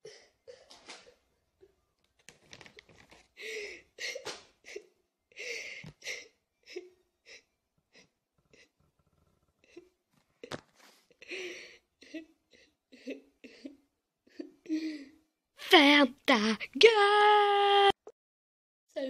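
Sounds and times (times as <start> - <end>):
girl sobbing and sniffling: 3.3 - 8.8, 9.7 - 15.3.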